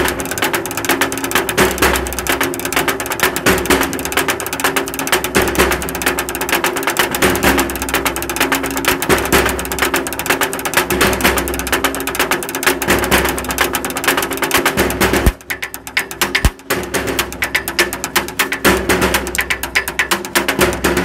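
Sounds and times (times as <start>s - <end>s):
sticks tapping on metal sign: 0.0s - 21.0s.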